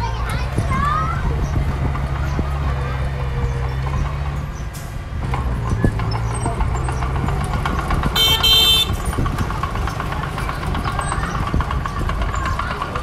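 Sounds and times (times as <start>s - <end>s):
heavy equipment engine rumbling: 0.0s - 13.0s
short high horn toot: 8.2s - 9.0s.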